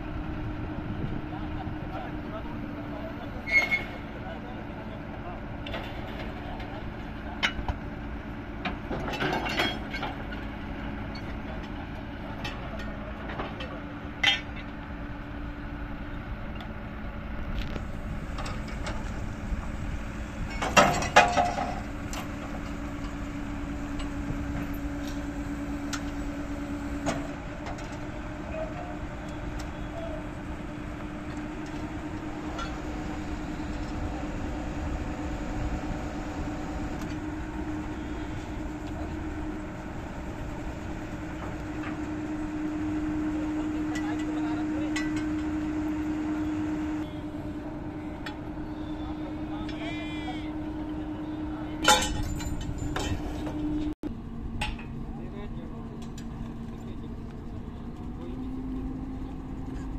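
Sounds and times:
drilling rig engine hum: 0.0s - 59.9s
sharp metal clanks: 51.8s - 53.3s.

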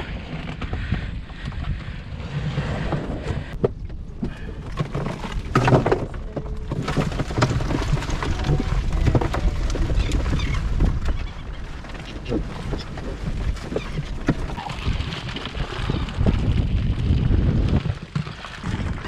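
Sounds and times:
wind rumbling on microphone: 0.0s - 19.0s
net sliding along boat: 1.6s - 3.6s.

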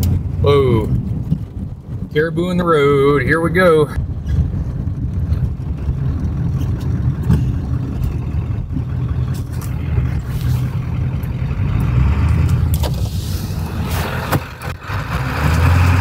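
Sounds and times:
diesel engine humming: 0.0s - 16.0s
tyre noise on snowy road: 0.0s - 16.0s.

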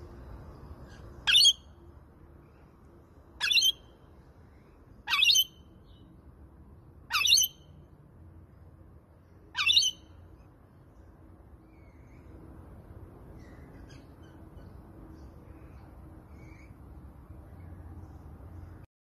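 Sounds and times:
lorikeet squawking: 1.0s - 1.7s, 3.4s - 3.9s, 5.0s - 5.6s, 7.1s - 7.6s, 9.5s - 10.1s.

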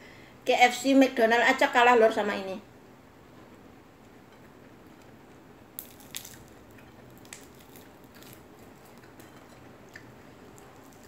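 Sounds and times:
chewing crackles: 5.8s - 11.0s.

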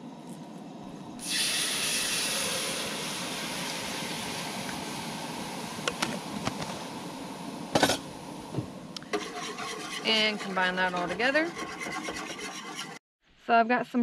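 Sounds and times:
milk sizzling in hot pot: 1.2s - 12.9s.

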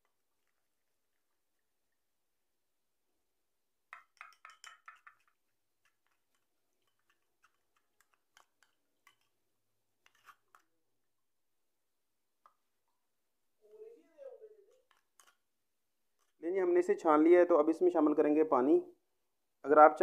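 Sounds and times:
metal spoon clinking on strainer: 4.0s - 5.3s.

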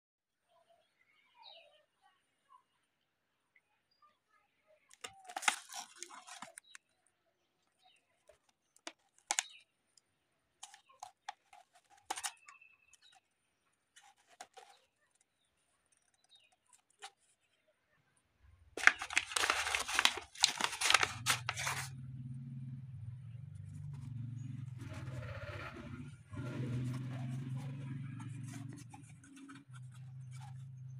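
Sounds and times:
mailer bag crinkling: 5.0s - 6.8s, 8.8s - 9.6s, 10.6s - 13.2s, 18.8s - 21.9s
paper ripping and crumpling: 5.0s - 6.8s, 8.9s - 9.6s, 10.6s - 13.2s, 14.0s - 15.2s, 18.8s - 22.0s.

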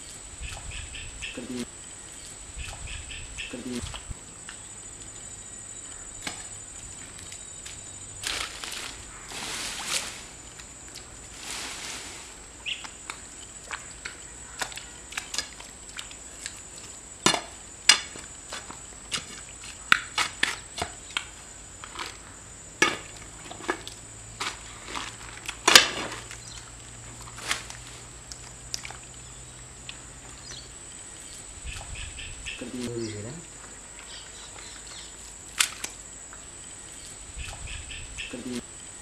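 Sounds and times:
mud squelching: 0.4s - 1.7s, 6.2s - 22.2s, 23.0s - 30.4s, 31.5s - 33.4s, 37.3s - 38.6s.

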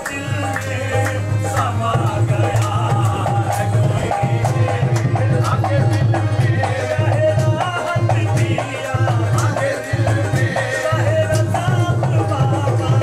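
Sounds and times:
tabla beat: 0.0s - 13.0s.

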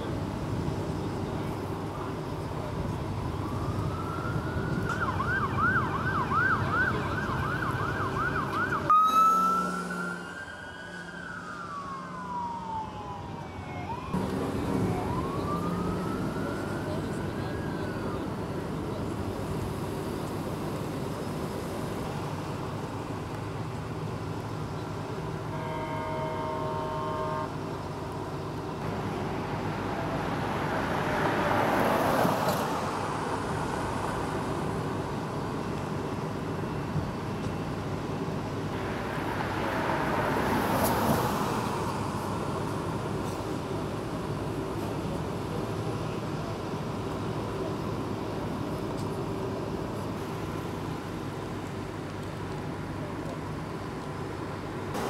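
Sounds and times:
engine hum: 0.0s - 25.5s
emergency vehicle siren: 2.1s - 19.6s.

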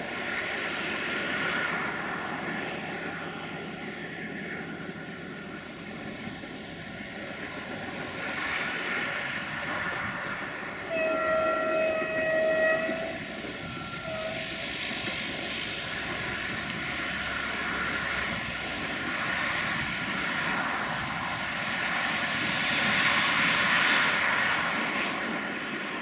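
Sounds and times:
steady rushing noise: 0.0s - 26.0s
train horn blasts: 10.8s - 14.8s.

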